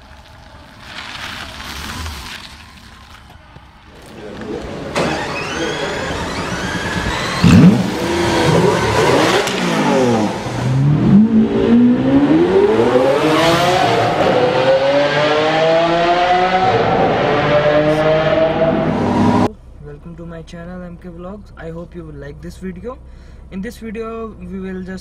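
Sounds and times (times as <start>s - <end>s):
car engine revving: 3.9s - 19.8s.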